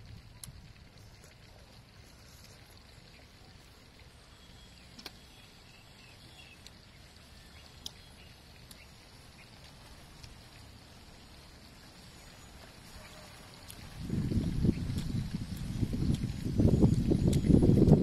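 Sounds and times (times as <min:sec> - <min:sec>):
wind rumble on microphone: 0:13.7 - 0:18.0.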